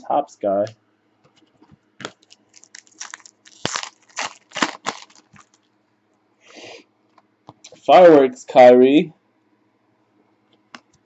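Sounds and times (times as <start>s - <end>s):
foil wrapper crinkling: 2.0s - 5.7s.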